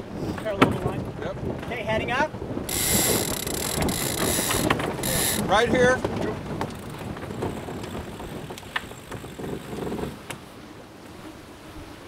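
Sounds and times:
water rushing past boat hull: 0.0 - 12.0
wind rushing: 2.3 - 9.5.

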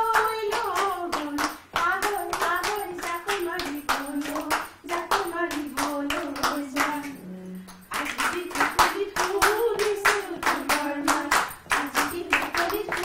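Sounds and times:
voices singing: 0.0 - 13.0
women clapping hands: 0.0 - 13.0.

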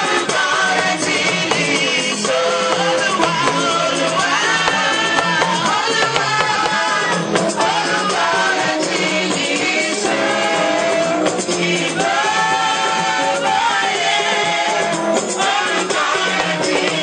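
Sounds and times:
hand drums: 0.0 - 10.4
woman singing into a microphone: 0.0 - 11.2
voices singing along: 0.0 - 17.0.

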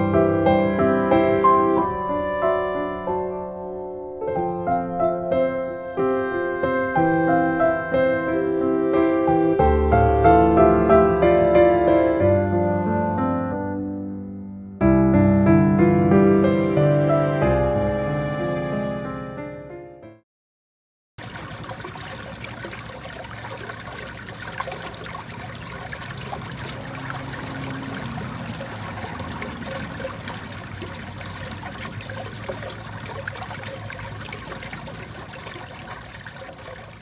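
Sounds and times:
stream flowing: 21.2 - 37.0.

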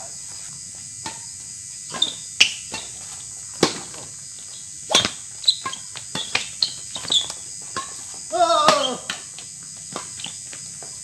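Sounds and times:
crickets droning: 0.0 - 11.0
rackets striking shuttlecock: 1.9 - 3.0, 3.6 - 4.0, 4.9 - 8.0, 8.6 - 10.2.

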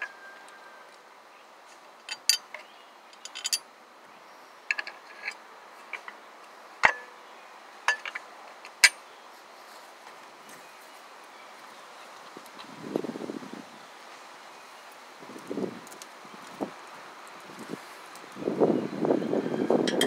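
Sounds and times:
steel bolts clinking on metal plate: 2.1 - 3.6, 6.8 - 7.2, 7.9 - 9.0.

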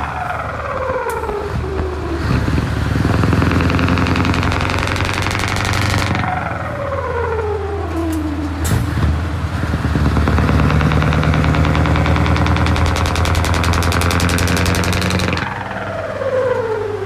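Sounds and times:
diesel truck engine running: 0.0 - 17.0
sharp crack: 3.0 - 6.7, 9.8 - 15.8.

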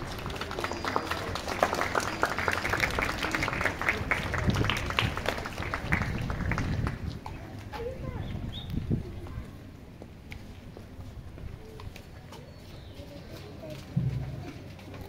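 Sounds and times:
crowd applauding: 0.0 - 7.2.

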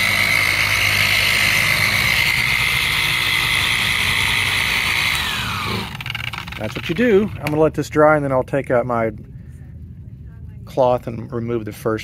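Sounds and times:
orbital waxer motor whine: 0.0 - 7.6.

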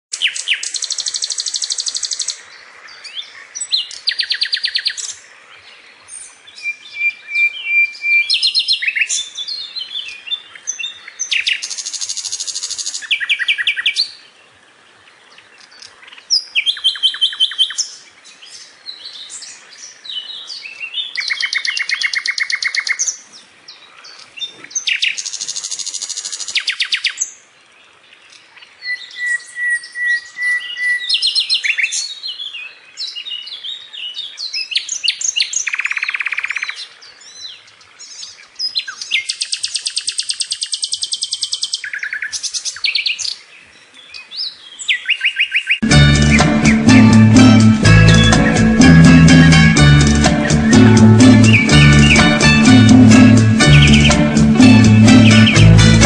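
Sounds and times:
nightingale singing: 0.1 - 2.4, 3.0 - 5.2, 6.1 - 14.2, 15.4 - 23.2, 28.3 - 56.0.

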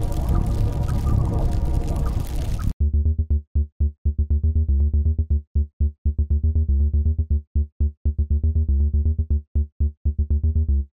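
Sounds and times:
stuttering electronic music: 0.0 - 2.8.

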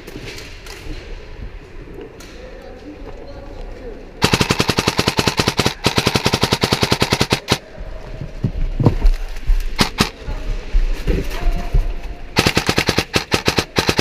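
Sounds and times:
airsoft gun firing: 4.2 - 7.6, 9.8 - 10.2, 12.4 - 14.0.

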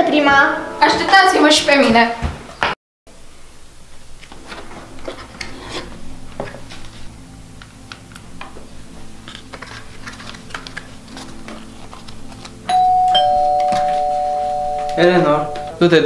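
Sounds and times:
paper plates and cardboard handled: 9.2 - 12.6
doorbell chime: 12.7 - 16.0.

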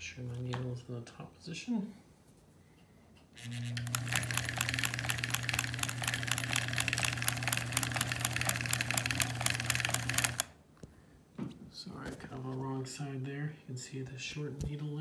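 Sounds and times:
sewing machine stitching: 3.4 - 10.5.

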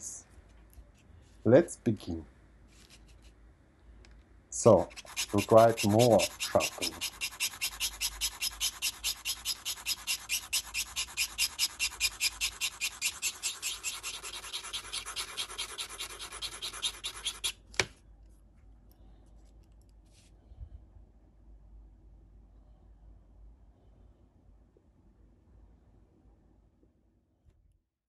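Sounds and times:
screwdriver scraping on sharpening stone: 4.9 - 17.6.

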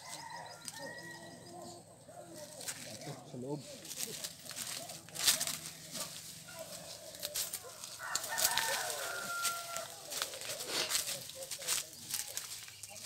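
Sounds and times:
rooster crowing: 0.0 - 1.6, 6.6 - 10.7
footsteps in dry leaves: 2.3 - 13.0.

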